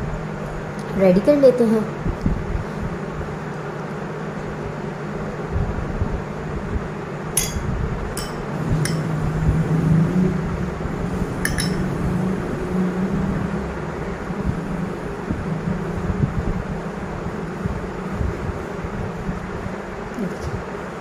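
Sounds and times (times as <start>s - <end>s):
steady low hum: 0.0s - 21.0s
metal spoon clinking on glass plate: 7.4s - 9.1s, 11.4s - 11.9s.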